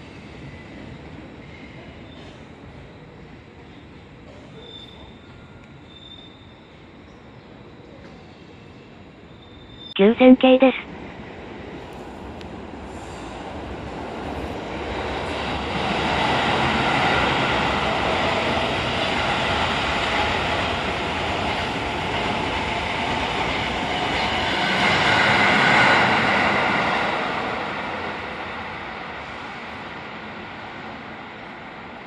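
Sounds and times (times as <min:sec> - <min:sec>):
electric train passing: 0:10.9 - 0:32.0.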